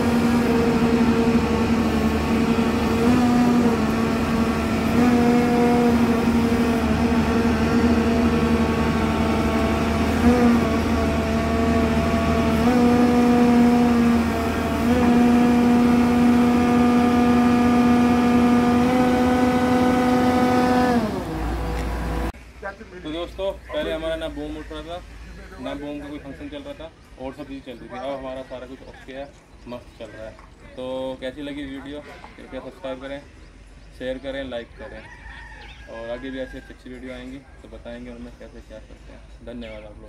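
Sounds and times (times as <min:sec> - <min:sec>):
excavator diesel engine and hydraulics: 0:00.0 - 0:29.6.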